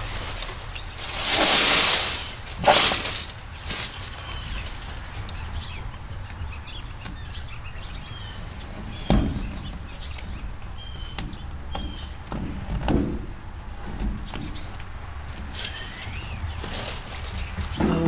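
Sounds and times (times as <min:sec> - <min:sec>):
foam insulation rustling bump: 0:00.0 - 0:05.2, 0:08.6 - 0:10.6
birds chirping faintly: 0:00.0 - 0:18.0
outdoor background rumble: 0:00.0 - 0:18.0.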